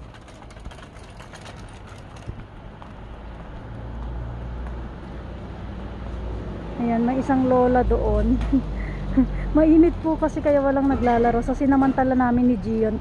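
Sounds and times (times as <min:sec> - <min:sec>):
scooter wheels clicking on paving: 0:00.0 - 0:05.2.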